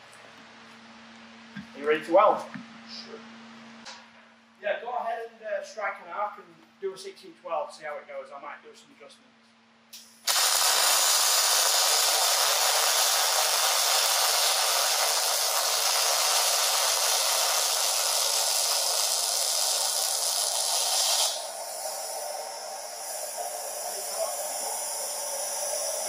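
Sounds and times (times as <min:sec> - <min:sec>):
extraction airflow hiss: 0:09.9 - 0:26.0
welding arc sizzling: 0:10.0 - 0:26.0.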